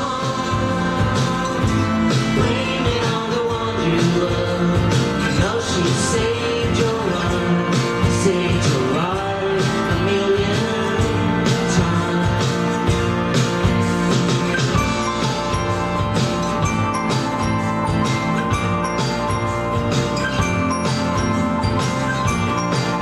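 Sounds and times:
people singing: 0:00.0 - 0:12.8
guitar strumming: 0:00.0 - 0:23.0
keyboard: 0:00.0 - 0:23.0.

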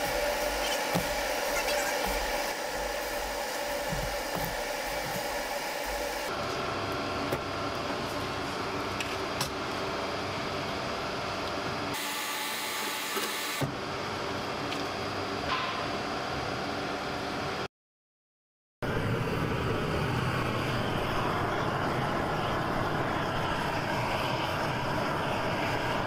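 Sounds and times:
mixer motor humming: 0:00.0 - 0:13.6.

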